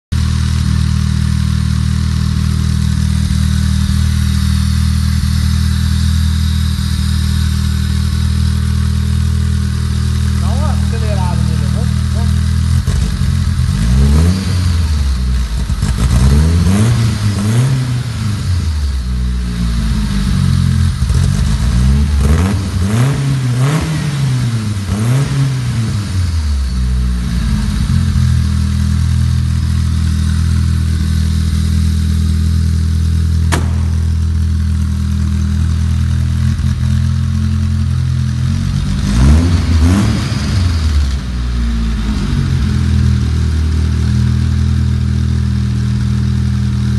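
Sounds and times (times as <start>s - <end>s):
car engine revving and idling: 0.1s - 46.9s
sharp click: 33.5s - 34.3s.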